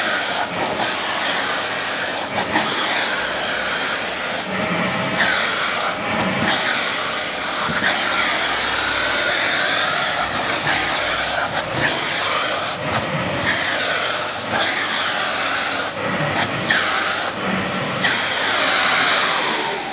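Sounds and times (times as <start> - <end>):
vacuum cleaner running: 0.0 - 19.9
vacuum nozzle knocking: 0.1 - 14.6.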